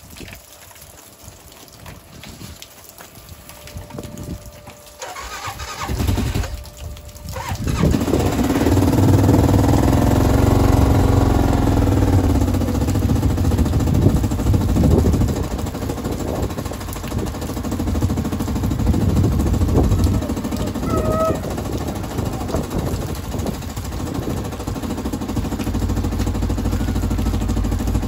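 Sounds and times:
engine fast idling: 5.0 - 6.5, 7.3 - 28.0
starter motor cranking: 5.0 - 6.6, 7.3 - 11.6.

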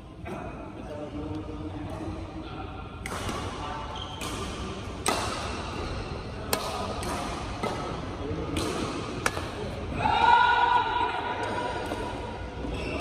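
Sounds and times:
rackets hitting a shuttlecock: 2.9 - 9.9.

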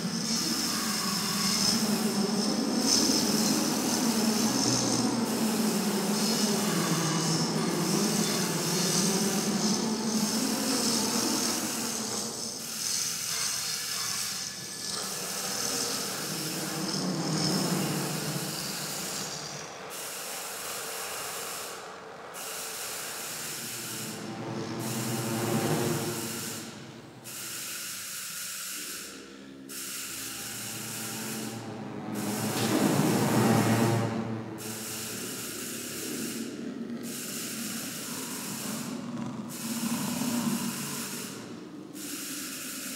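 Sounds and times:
hissing rubbing noise texture: 0.0 - 21.9, 30.1 - 42.5.

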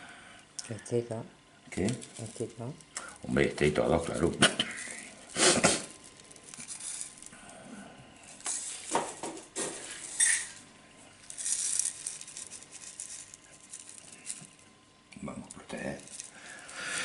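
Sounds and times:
granular soil rattling into pot: 11.2 - 14.6.

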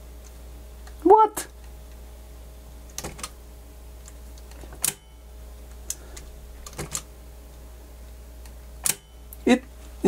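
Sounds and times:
steady low hum: 0.0 - 10.0
cassette deck mechanism clicks: 8.8 - 9.1.

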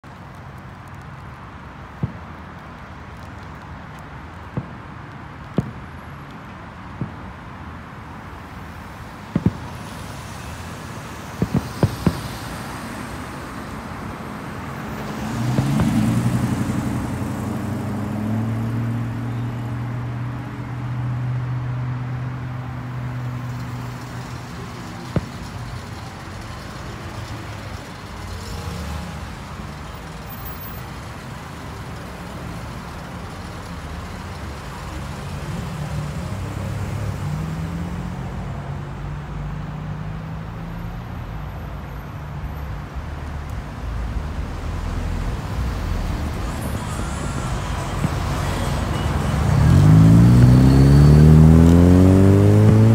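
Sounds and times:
car engines passing: 0.0 - 52.9
tyre and traffic noise: 0.0 - 52.9
sharp pop: 9.3 - 9.7, 11.4 - 12.4.

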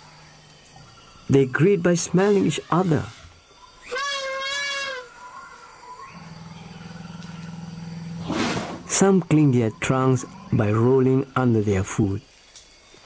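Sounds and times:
elephant squealing: 2.0 - 9.0
elephant low rumble: 6.0 - 11.4
elephant harsh blast: 8.2 - 9.0.

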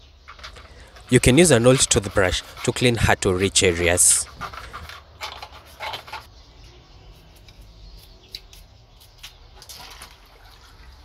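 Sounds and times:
handling sounds: 0.3 - 6.4
toothbrush scrubbing plastic: 0.5 - 6.3
wet cloth wrung out: 9.6 - 11.0.

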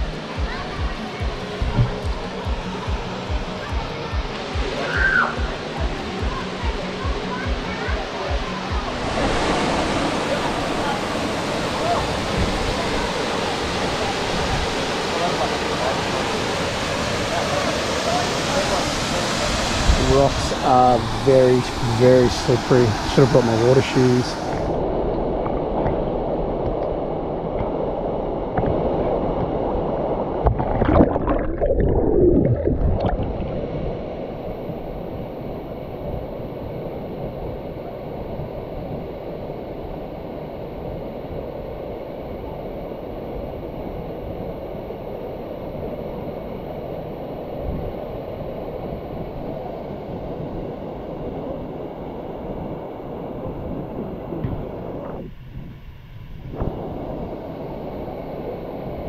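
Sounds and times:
waterfall rushing water: 3.6 - 24.9.

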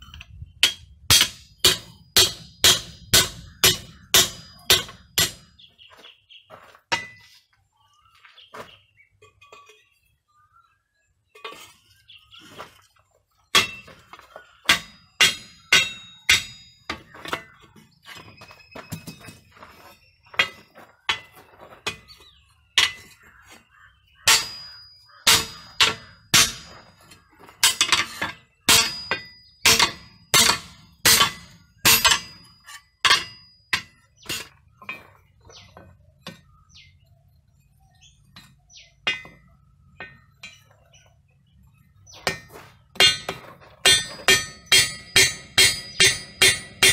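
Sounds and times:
hammer striking hot steel: 0.6 - 5.6, 14.6 - 17.5, 24.3 - 26.8, 27.6 - 34.5, 42.2 - 46.9.

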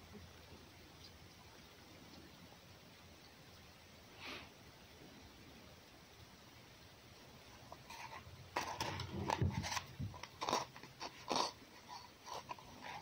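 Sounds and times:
animal crunching and chewing: 7.6 - 13.0.

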